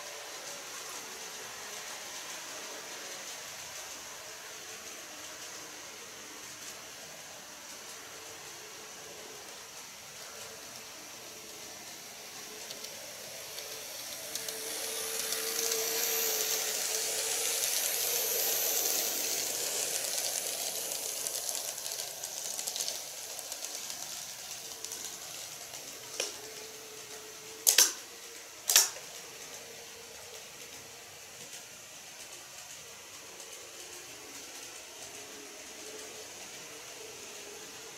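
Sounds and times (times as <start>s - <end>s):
model train whirring past: 0.0s - 37.9s
sharp loud clicks: 28.7s - 29.0s.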